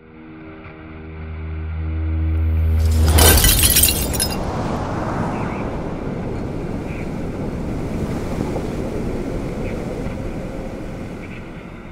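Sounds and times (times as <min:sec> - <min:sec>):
low wind-like rumble: 0:02.4 - 0:11.9.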